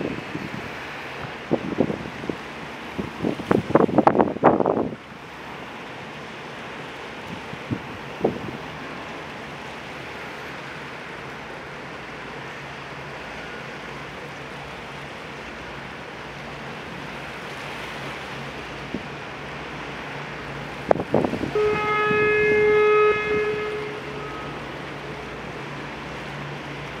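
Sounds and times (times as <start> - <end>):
wind on microphone: 0.0 - 5.0, 7.2 - 8.7, 20.7 - 24.4
open-water noise: 0.0 - 27.0
ship's horn blast: 18.8 - 27.0.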